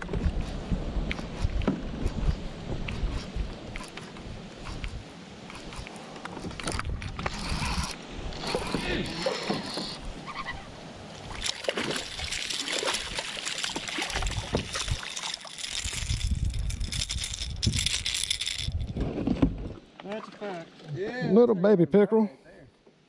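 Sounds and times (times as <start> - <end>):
fish splashing at water surface: 11.2 - 16.6.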